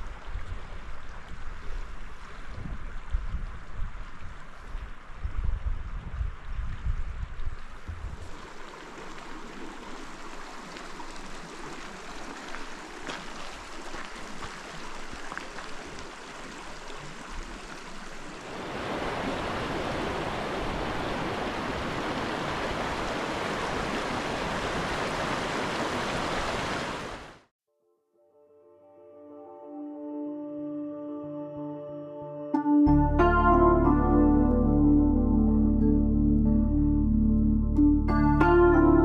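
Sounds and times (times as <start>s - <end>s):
wind buffeting microphone: 0.0s - 8.4s
rushing stream water: 0.0s - 27.5s.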